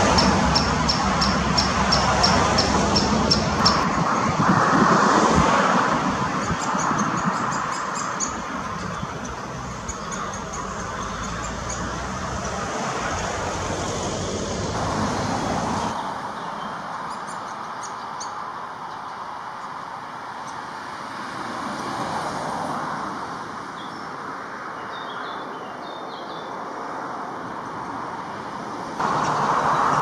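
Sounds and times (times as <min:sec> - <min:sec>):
road traffic: 0:00.0 - 0:30.0
high-pitched bird calls: 0:06.3 - 0:13.3.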